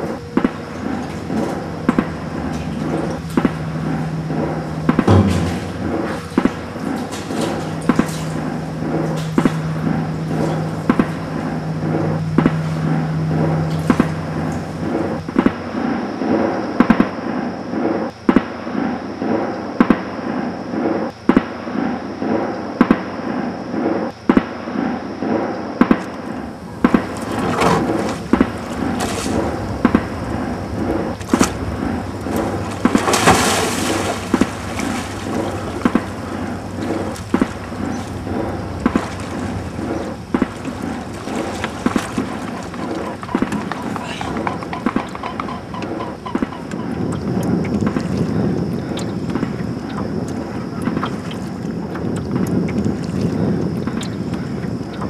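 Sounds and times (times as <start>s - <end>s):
sharp bangs: 0.0s - 15.8s, 25.8s - 45.1s
dense wash of noise: 0.0s - 16.5s, 26.2s - 44.5s.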